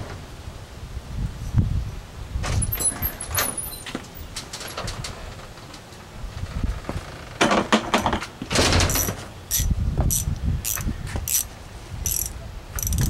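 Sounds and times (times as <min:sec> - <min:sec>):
socket ratchet clicking: 0:08.9 - 0:13.0.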